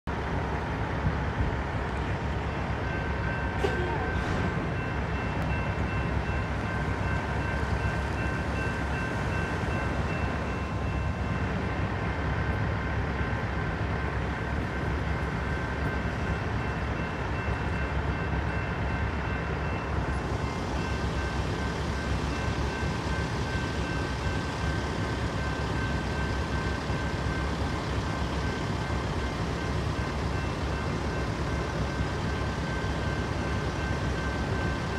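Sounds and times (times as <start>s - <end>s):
railroad crossing bell ringing: 1.5s - 34.9s.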